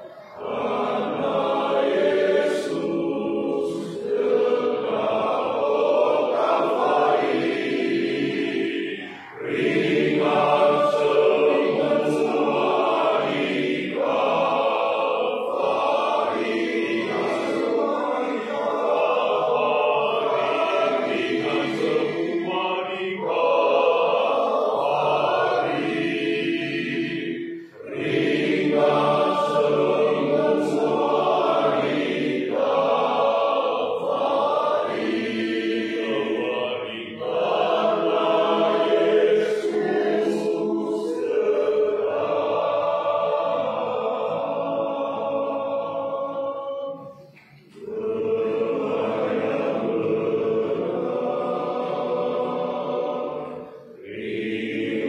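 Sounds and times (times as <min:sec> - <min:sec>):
men's choir singing a hymn: 0:00.0 - 0:55.0.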